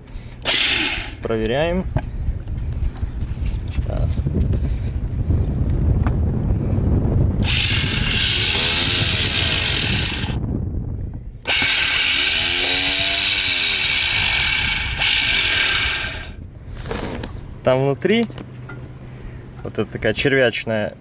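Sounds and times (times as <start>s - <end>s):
electric motor whining: 0.4s - 1.3s, 7.4s - 10.4s, 11.5s - 17.2s.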